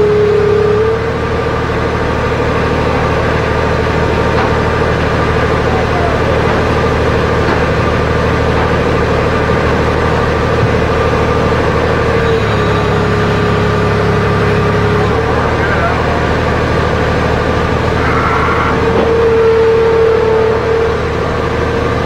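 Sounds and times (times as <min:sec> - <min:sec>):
heavy equipment engine running: 0:00.0 - 0:22.0.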